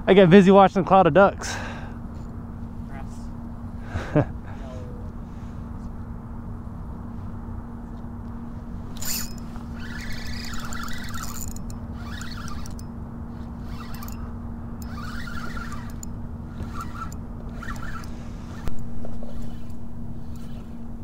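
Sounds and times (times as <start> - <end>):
low hum: 0.0 - 21.0
fishing reel whirring: 8.9 - 21.0.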